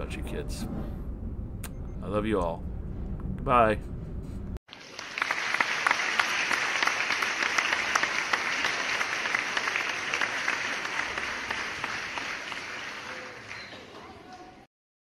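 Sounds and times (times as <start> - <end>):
crowd applauding: 4.7 - 14.7.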